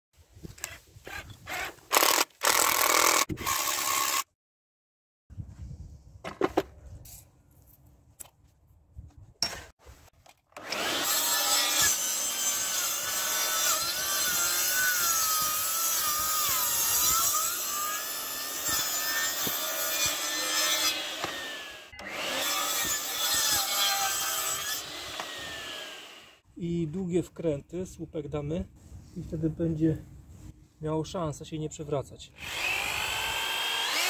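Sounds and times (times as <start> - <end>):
mitre saw cutting wood: 0.6 - 4.3, 10.6 - 26.4, 32.4 - 34.0.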